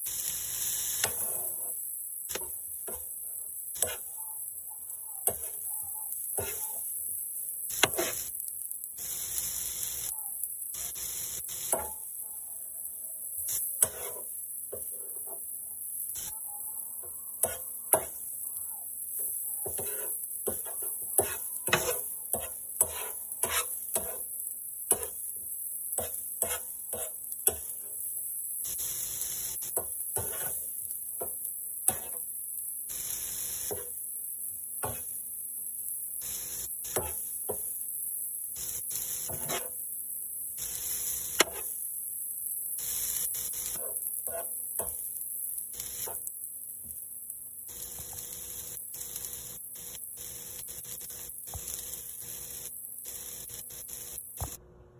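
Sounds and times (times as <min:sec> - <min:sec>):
metal spoon scraping griddle: 0:00.7 - 0:03.1, 0:03.8 - 0:04.1, 0:06.4 - 0:06.8, 0:07.7 - 0:08.3, 0:13.5 - 0:15.4, 0:19.2 - 0:25.2, 0:25.9 - 0:28.0, 0:29.6 - 0:32.2, 0:38.6 - 0:39.8, 0:40.6 - 0:41.8, 0:42.8 - 0:45.0.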